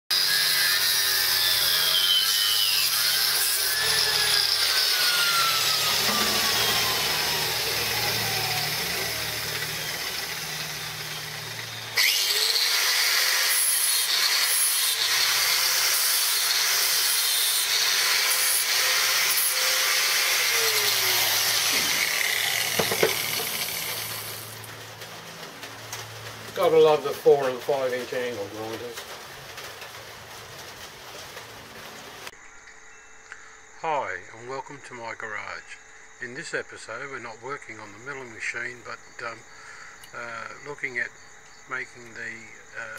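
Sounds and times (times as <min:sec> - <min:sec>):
angle grinder grinding steel: 0:00.1 - 0:30.0.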